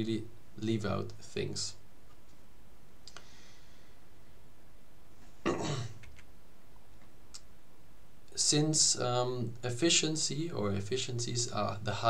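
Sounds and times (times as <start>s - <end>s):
steady background hiss: 0.0s - 12.0s
faint clicks: 3.0s - 3.3s
man clearing his throat: 5.4s - 6.0s.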